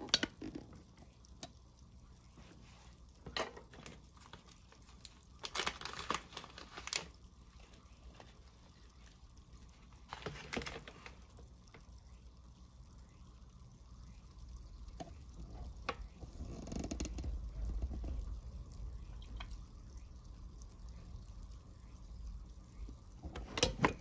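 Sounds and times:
crinkling of handled objects: 2.4s - 11.9s, 15.0s - 19.6s.

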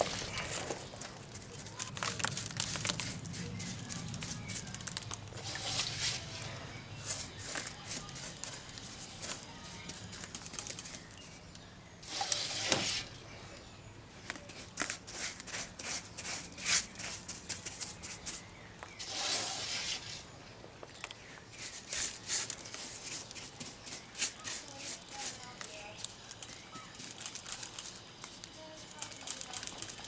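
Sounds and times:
paintbrush scraping cement: 0.0s - 4.8s, 5.4s - 11.0s, 12.0s - 13.1s, 14.5s - 18.4s, 19.0s - 20.2s, 21.5s - 26.0s
brush swishes: 5.4s - 10.2s, 12.0s - 13.1s, 19.0s - 20.2s.

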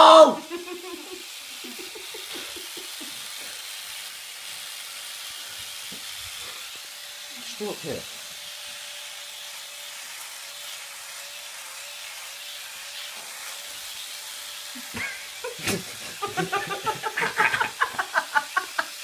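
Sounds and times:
person laughing: 0.1s - 3.5s, 14.7s - 19.0s.

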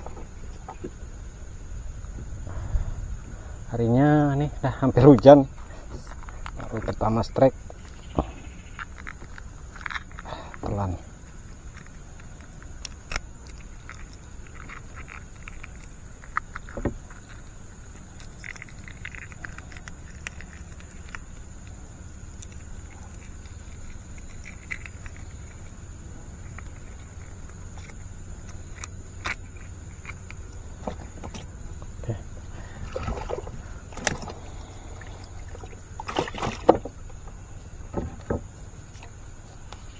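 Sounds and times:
faint high-pitched hiss: 0.0s - 39.9s
steady low rumble: 0.0s - 39.9s
hands handling fishing gear: 22.4s - 39.9s.

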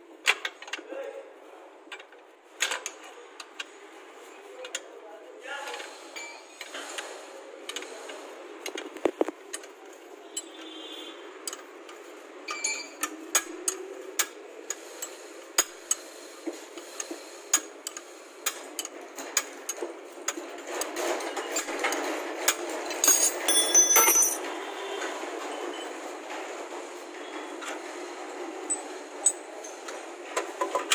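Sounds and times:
spanner clinking on nut: 23.0s - 24.4s.

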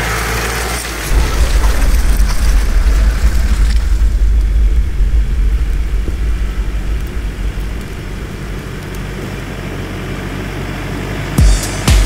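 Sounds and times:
deep steady rumble: 1.0s - 10.5s.

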